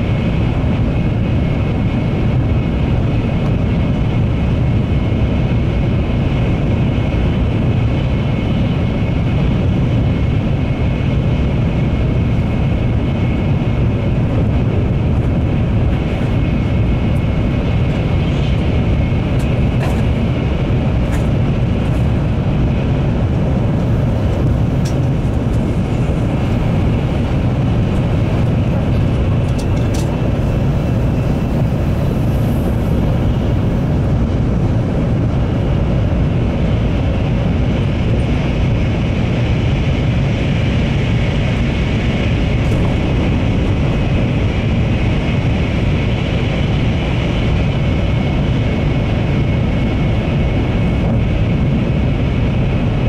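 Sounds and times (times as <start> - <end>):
train cabin noise in tunnel: 0.0 - 53.0.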